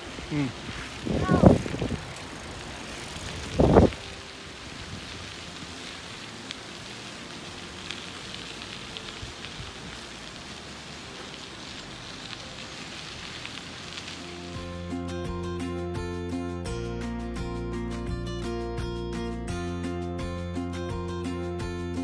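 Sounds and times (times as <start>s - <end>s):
bicycle tyres rolling on gravel: 0.0s - 16.3s.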